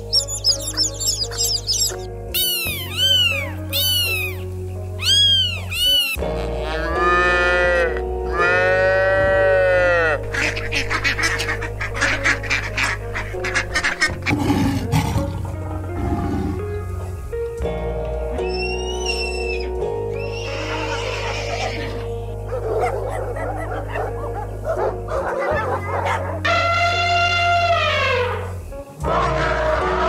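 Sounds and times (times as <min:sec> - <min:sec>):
long drawn-out animal calls: 0:00.0 - 0:06.2
backing tune: 0:00.0 - 0:10.4
cat meows: 0:02.4 - 0:04.4, 0:05.0 - 0:06.2
lion roar: 0:14.3 - 0:16.8.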